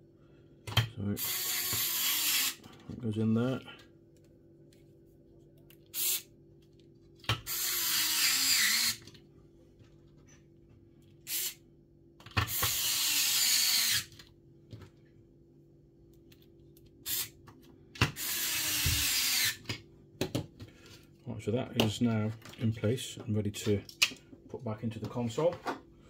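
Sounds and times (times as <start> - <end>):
electric screwdriver whirring: 7.4 - 9.1, 12.5 - 14.1, 18.2 - 19.6.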